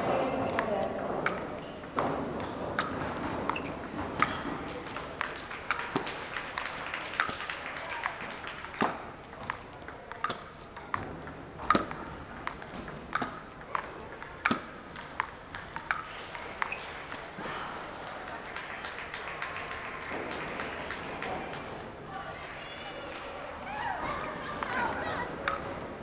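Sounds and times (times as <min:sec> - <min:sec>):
table tennis ball hits: 0:00.0 - 0:17.6, 0:24.0 - 0:26.0.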